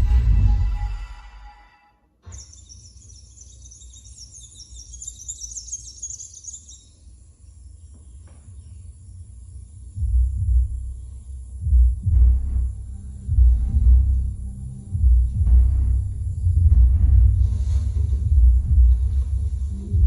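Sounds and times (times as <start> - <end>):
deep bass rumble: 0.0 - 1.2, 9.9 - 20.0
birds chirping: 2.2 - 20.0.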